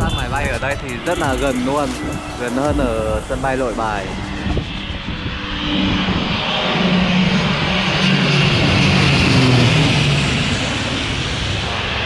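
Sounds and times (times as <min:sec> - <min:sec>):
propeller plane flying overhead: 0:00.0 - 0:12.0.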